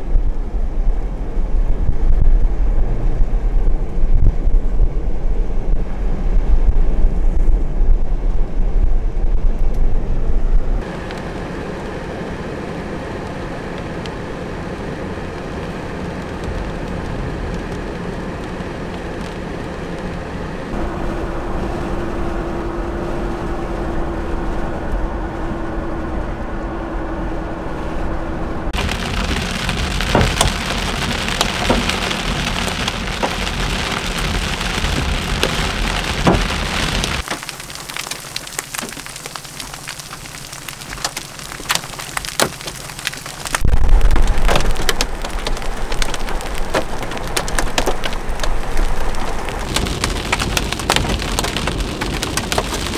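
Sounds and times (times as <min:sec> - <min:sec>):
loud low rumble: 0:00.0 - 0:37.2, 0:43.5 - 0:52.9
storm noise: 0:00.0 - 0:38.5, 0:40.3 - 0:52.9
rain and hail hitting a vehicle: 0:13.2 - 0:20.2, 0:28.8 - 0:52.9.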